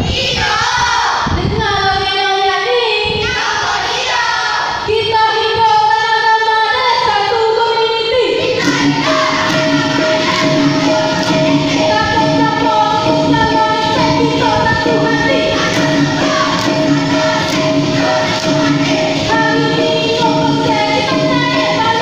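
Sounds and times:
woman singing through a microphone: 0:01.3 - 0:03.3, 0:04.8 - 0:22.0
sustained musical backing: 0:08.2 - 0:22.0.

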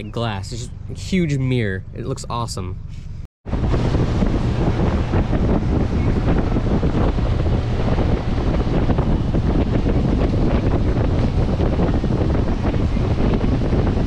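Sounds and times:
wind buffeting microphone: 0:03.4 - 0:14.0
boat rushing through water: 0:03.5 - 0:14.0.

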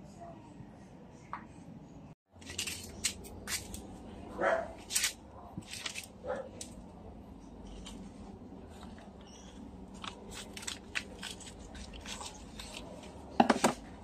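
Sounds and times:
scissors snipping roots: 0:09.9 - 0:13.0.

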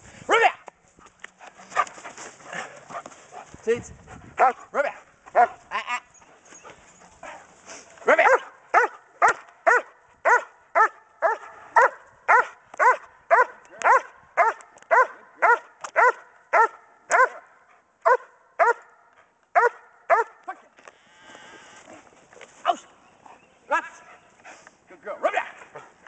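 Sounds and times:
dog barking: 0:05.3 - 0:05.6, 0:08.1 - 0:20.4.

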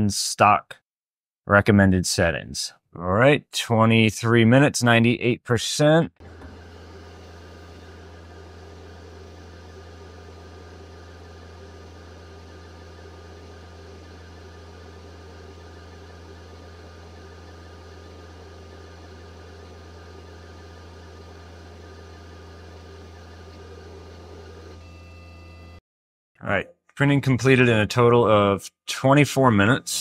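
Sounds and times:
printer fan hum: 0:06.2 - 0:25.8.

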